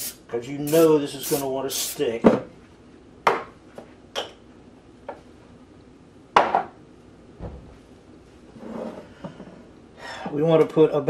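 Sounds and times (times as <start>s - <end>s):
objects knocking on countertop: 6.4s - 6.8s.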